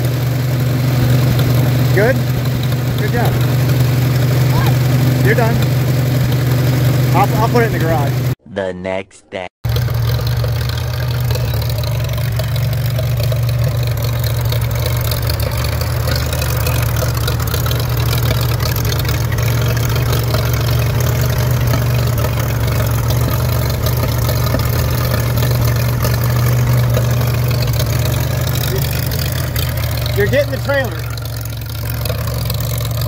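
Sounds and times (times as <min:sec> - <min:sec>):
tractor engine running: 0:00.0 - 0:08.4, 0:09.6 - 0:33.0.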